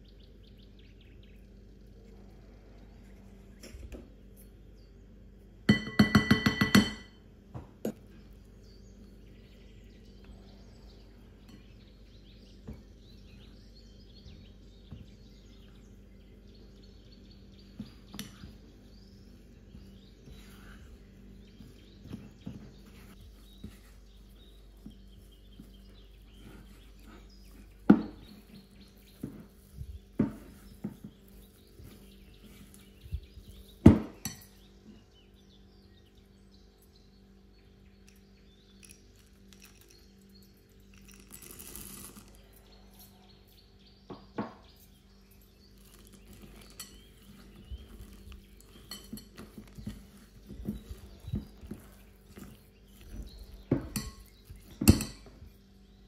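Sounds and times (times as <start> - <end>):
spatula knocking against bowl: 5.7 - 7.2
spatula scraping and mixing dough: 16.6 - 34.5, 45.5 - 55.6
spatula clinking against glass: 45.8 - 55.3.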